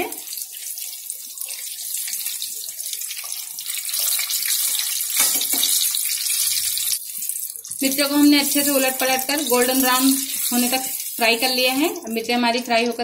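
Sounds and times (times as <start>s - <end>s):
chillies deep-frying in hot oil: 0.0s - 13.0s
knock in frying pot: 5.2s - 5.8s.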